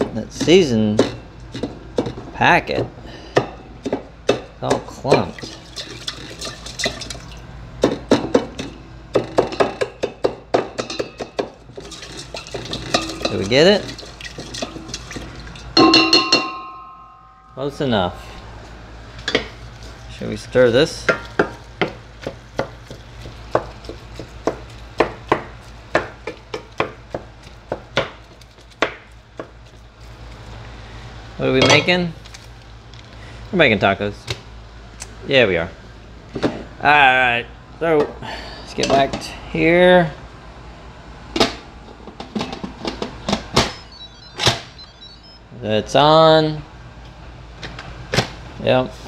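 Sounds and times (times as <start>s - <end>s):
wooden spoon stirring in pot: 11.4s - 15.8s.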